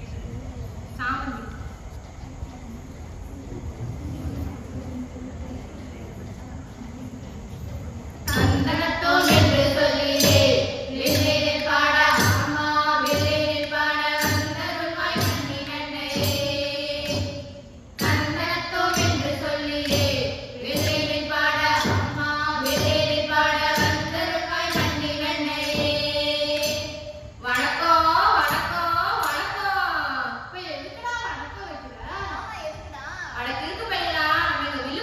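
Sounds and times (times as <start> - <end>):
steady percussion beat: 8.2 - 29.6
girls singing: 8.2 - 32.8.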